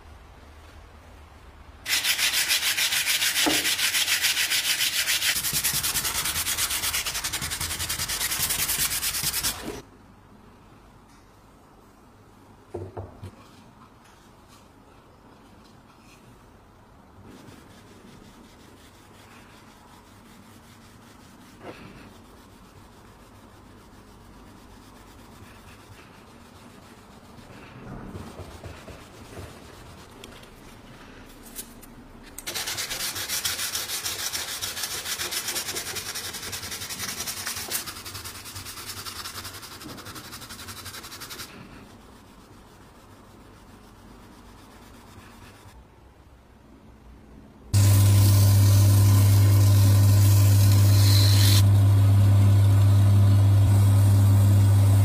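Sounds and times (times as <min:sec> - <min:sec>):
sanding sponge rubbing wood: 0:01.9 - 0:09.8, 0:32.5 - 0:45.8, 0:49.5 - 0:51.7.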